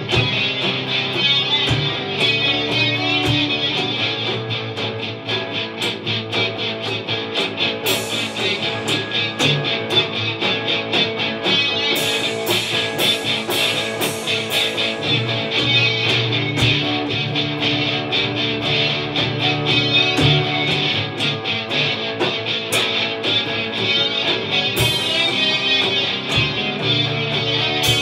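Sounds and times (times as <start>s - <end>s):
drum kit: 0.0s - 28.0s
electric guitars playing rock: 0.0s - 28.0s.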